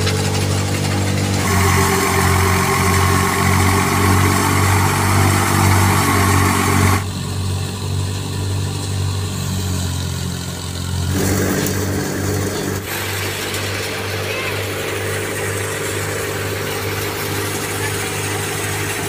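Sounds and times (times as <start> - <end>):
threshing machine whirring: 0.0 - 19.0
tractor engine drone: 0.0 - 19.0.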